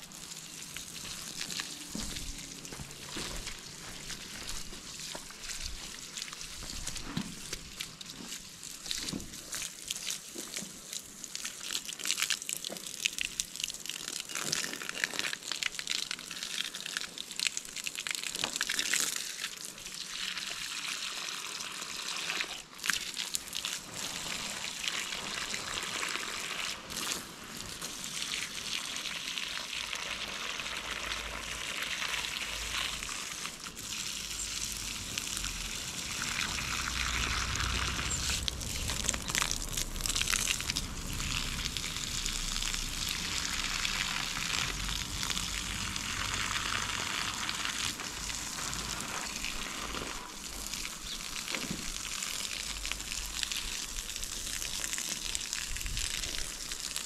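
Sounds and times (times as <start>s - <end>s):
water splashing and trickling: 0.0s - 57.0s
low rumble: 32.5s - 50.0s.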